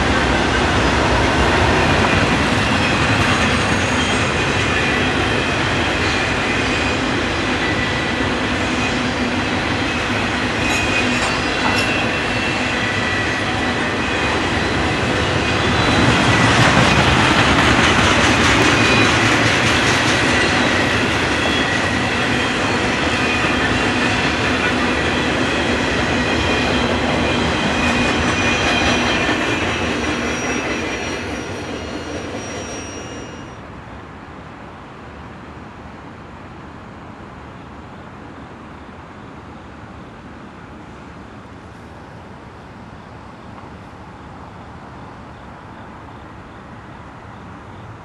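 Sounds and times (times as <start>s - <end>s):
train wheels rumbling on rails: 0.0s - 33.8s
high wheel squeals: 1.2s - 33.6s.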